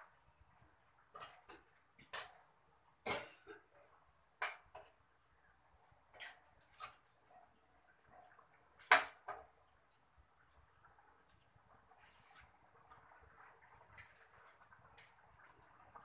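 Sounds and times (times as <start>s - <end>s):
spatula scraping a pan: 6.1s - 7.2s.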